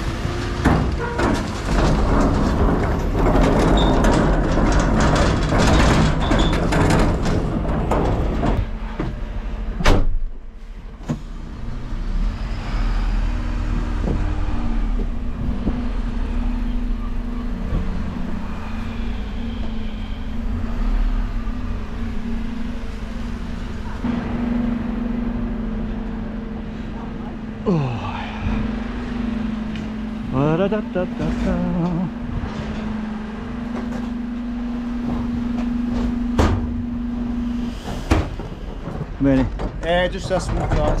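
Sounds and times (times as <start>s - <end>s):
truck diesel engine running: 10.7s - 40.5s.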